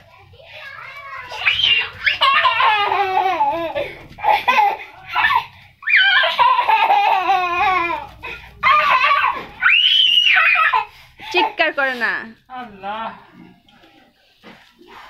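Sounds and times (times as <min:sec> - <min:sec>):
toddler laughing and shouting: 0:00.5 - 0:10.9.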